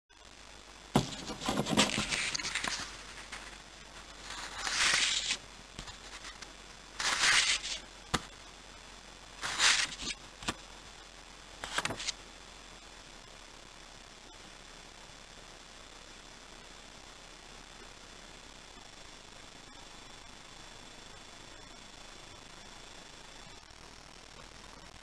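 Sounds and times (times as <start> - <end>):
paper banknotes rustling: 1.0 - 8.3, 9.4 - 10.6, 11.6 - 12.1.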